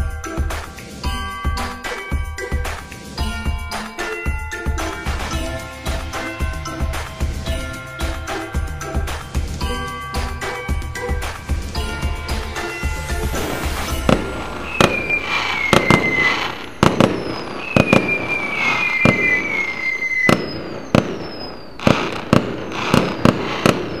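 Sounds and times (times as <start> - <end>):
fireworks bangs: 4.8 - 24.0
falling firework whistles: 10.4 - 24.0.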